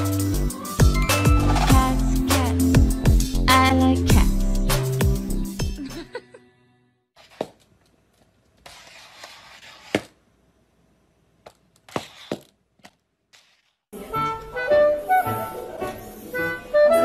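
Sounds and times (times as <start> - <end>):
music: 0.0 - 7.1, 14.0 - 17.0.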